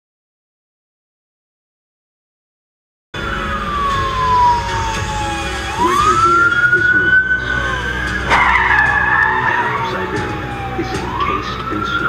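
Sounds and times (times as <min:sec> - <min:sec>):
emergency siren wailing: 0:03.2 - 0:12.0
road rumble: 0:03.2 - 0:12.0.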